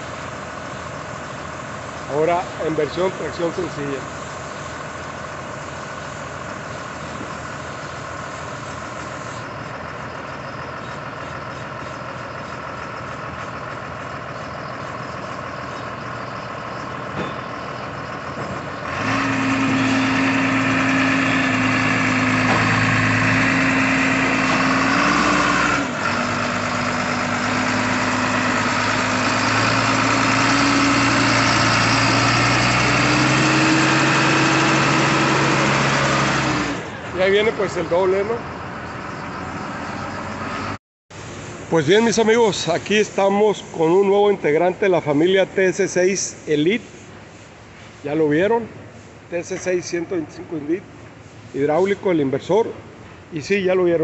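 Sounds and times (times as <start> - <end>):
tractor diesel engine idling: 0.0 - 33.2, 34.0 - 40.4.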